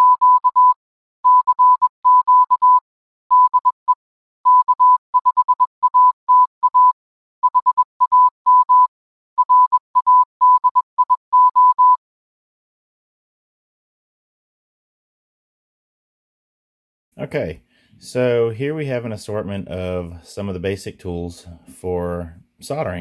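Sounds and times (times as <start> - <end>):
morse code beeps: 0.0 - 12.0.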